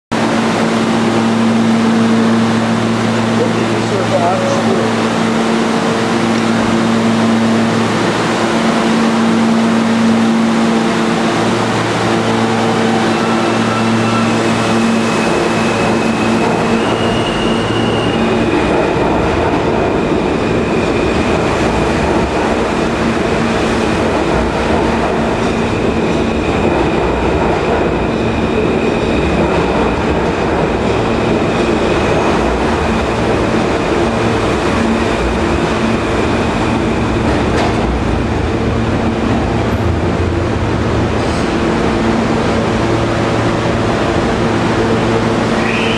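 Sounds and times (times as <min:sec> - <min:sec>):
subway train wheels rumbling: 0:00.1 - 0:45.9
train high whine: 0:00.2 - 0:45.9.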